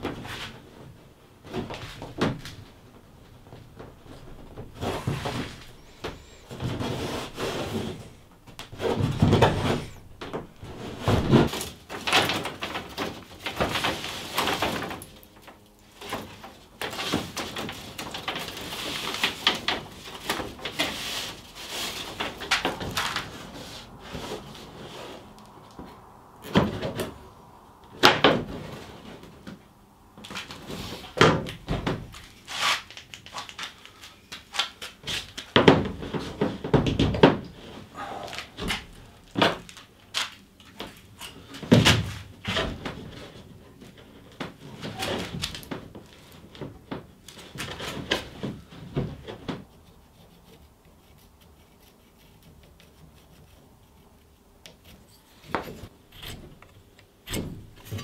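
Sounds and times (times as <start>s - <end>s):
wooden strips knocking: 3.8s - 11.6s
chisel scraping wood: 4.8s - 11.6s, 49.6s - 58.0s.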